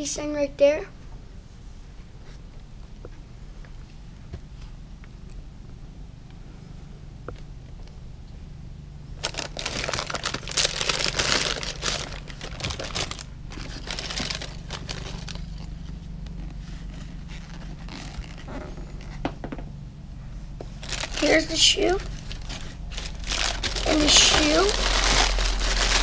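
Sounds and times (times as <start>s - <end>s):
tissue paper rustling: 9.2s - 18.6s, 20.7s - 26.0s.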